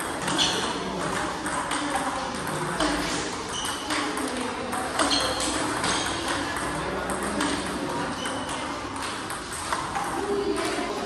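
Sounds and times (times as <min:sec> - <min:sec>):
table tennis balls clicking off bats: 0:00.0 - 0:10.9
balls bouncing on table: 0:00.0 - 0:11.0.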